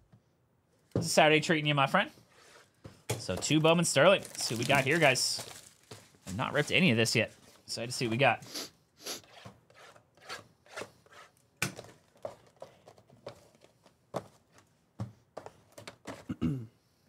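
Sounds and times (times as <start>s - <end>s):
plastic wrapping rustling: 2.4s - 7.7s.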